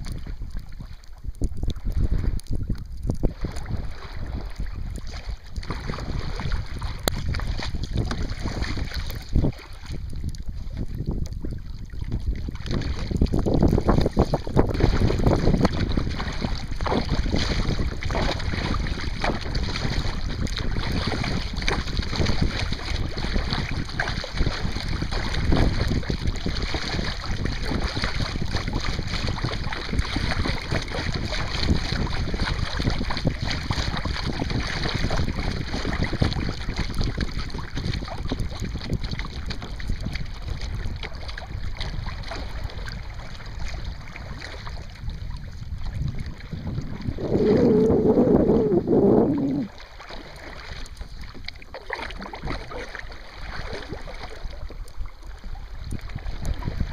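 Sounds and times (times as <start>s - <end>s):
water splashing against kayak: 0.0s - 56.9s
wind buffeting microphone: 0.0s - 56.9s.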